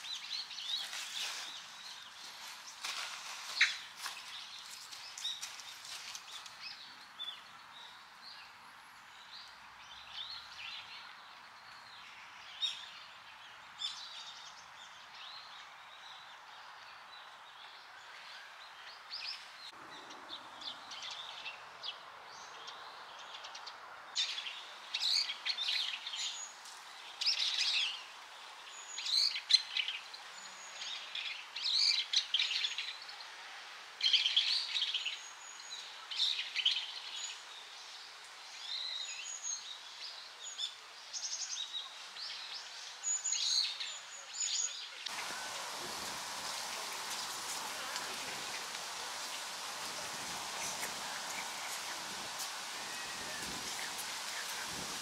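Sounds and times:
bird calling: 0:45.1 - 0:55.0
stream water running: 0:45.1 - 0:55.0.

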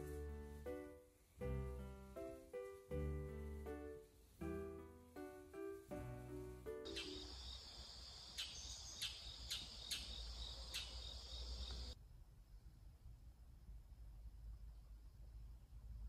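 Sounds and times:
insects chirping in a trill: 0:06.9 - 0:12.0
sharp insect chirps: 0:06.9 - 0:12.0.

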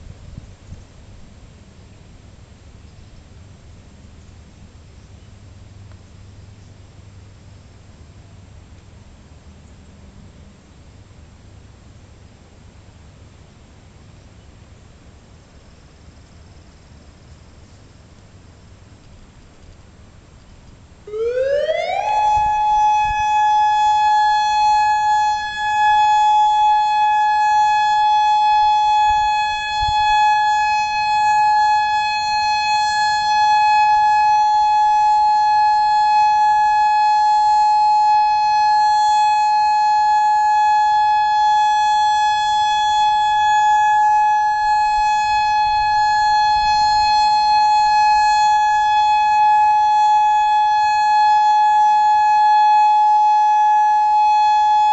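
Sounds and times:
electronic siren steady tone: 0:21.0 - 0:54.9
distant siren winding up: 0:21.1 - 0:54.9.

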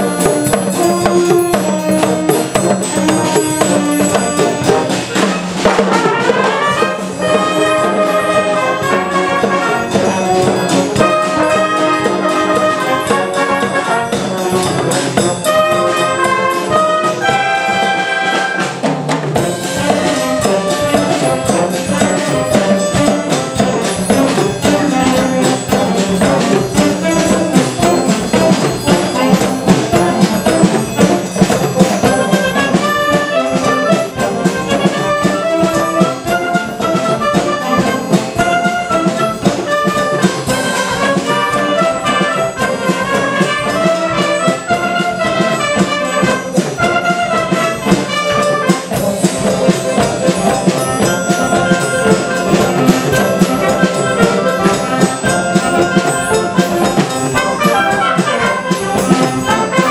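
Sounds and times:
wind band playing a mambo: 0:00.0 - 0:59.9.

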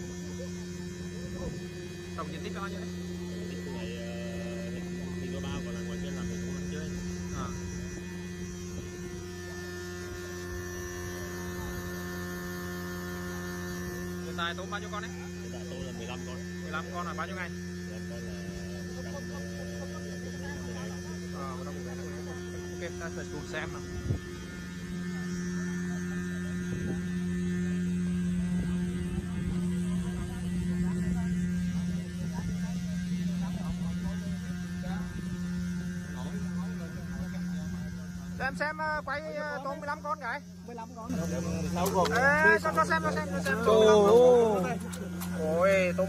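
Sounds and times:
aerator motors humming: 0:00.0 - 0:46.0.

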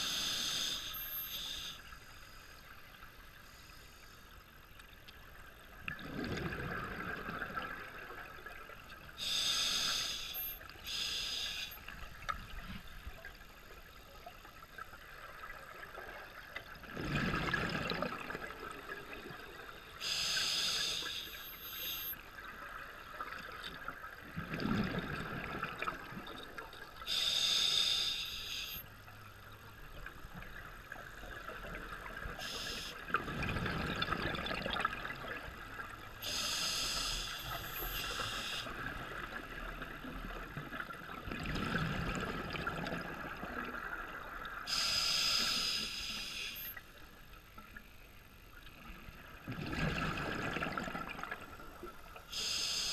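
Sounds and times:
hissing regulator inhalations: 0:00.0 - 0:01.8, 0:09.2 - 0:11.8, 0:20.0 - 0:22.2, 0:27.1 - 0:28.8, 0:32.4 - 0:33.0, 0:36.2 - 0:38.7, 0:44.7 - 0:46.8, 0:52.3 - 0:52.9.

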